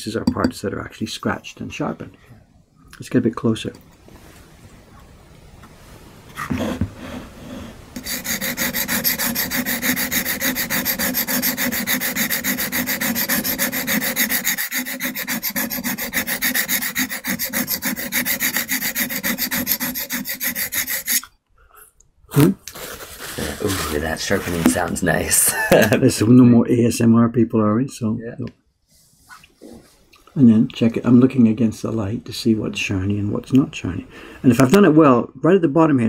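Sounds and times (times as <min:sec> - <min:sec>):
chisel scraping on sharpening stone: 0:08.0 - 0:21.3.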